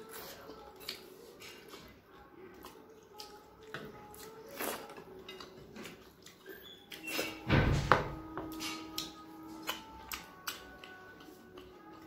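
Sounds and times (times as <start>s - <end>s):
chewing and lip-smacking: 0.0s - 7.4s, 8.5s - 12.0s
thump: 7.5s - 8.2s.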